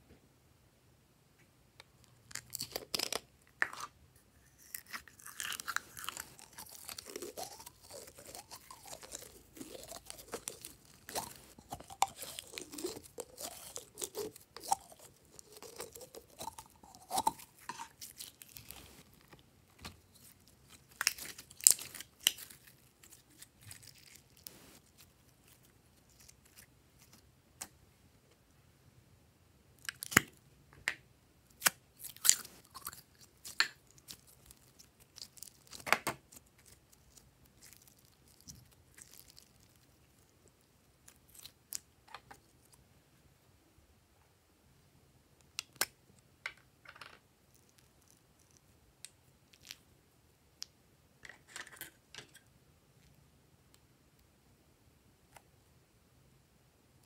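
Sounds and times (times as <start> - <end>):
slime squelching and crackling: 4.6 - 27.2.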